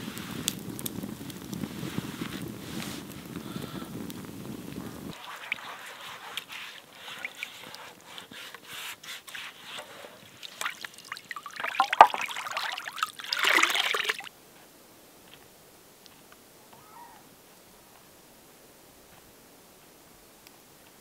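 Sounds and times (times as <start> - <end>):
water splashing and trickling: 5.1 - 14.3.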